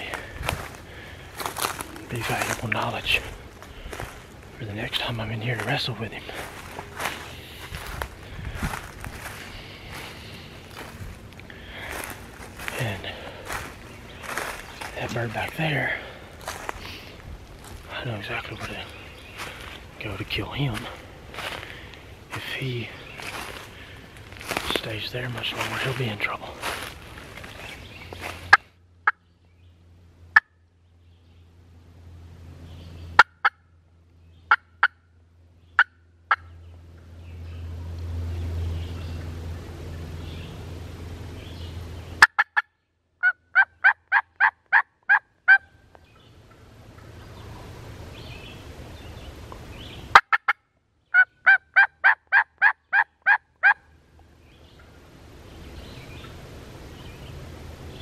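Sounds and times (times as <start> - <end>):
turkey clucks: 0.0 - 29.2, 33.2 - 33.6, 34.5 - 35.0, 35.8 - 36.6, 42.2 - 47.6, 50.1 - 53.9
turkey yelping: 33.2 - 33.6, 34.5 - 35.0, 35.8 - 36.5, 42.2 - 45.8, 50.1 - 53.9.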